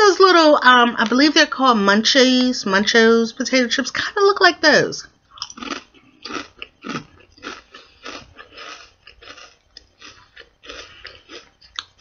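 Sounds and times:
person chewing crunchy snack: 5.3 - 12.0.

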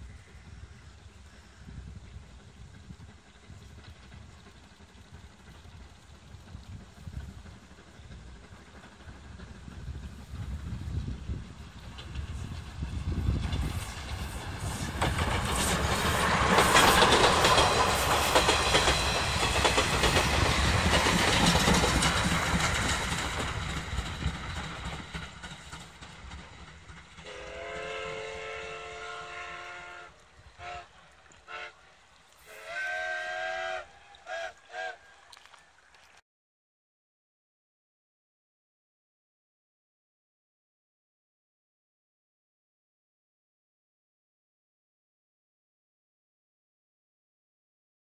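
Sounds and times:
train wheels clattering on rails: 1.9 - 29.3
steam locomotive whistle: 27.2 - 35.3.

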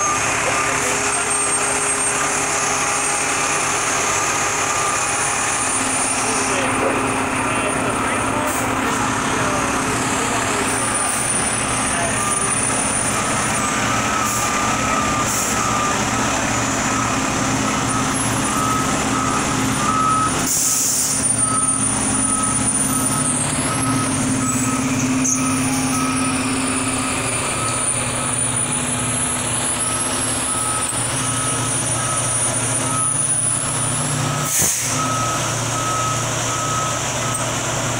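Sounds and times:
back-up alarm beeping: 0.0 - 37.6
diesel engine running: 0.0 - 37.9
air brakes hissing: 15.2 - 15.7, 20.4 - 21.9, 34.4 - 35.1.

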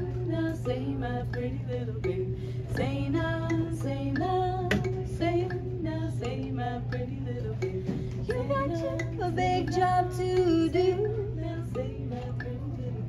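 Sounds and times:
kalimba plucked notes: 0.0 - 13.0
women singing in harmony: 0.0 - 13.0.

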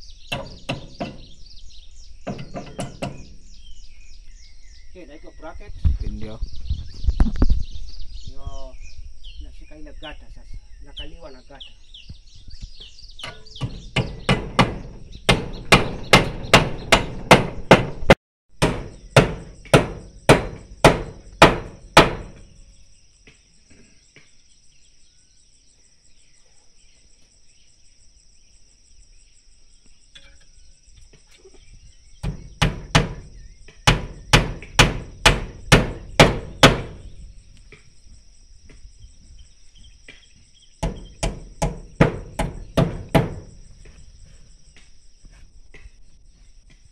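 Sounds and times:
high insect trill: 0.0 - 17.9, 18.6 - 46.9
hammer driving nails: 0.3 - 1.3, 2.2 - 3.3, 13.2 - 22.4, 32.2 - 37.1, 40.8 - 43.5.

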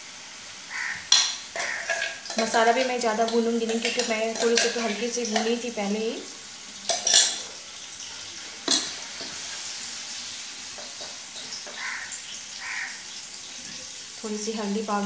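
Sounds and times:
paste sizzling in oil: 0.0 - 15.0
spatula stirring in pan: 0.7 - 5.8, 6.8 - 14.0.

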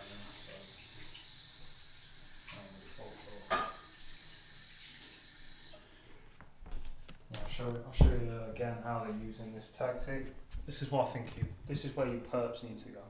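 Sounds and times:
steady hiss: 0.0 - 6.0.

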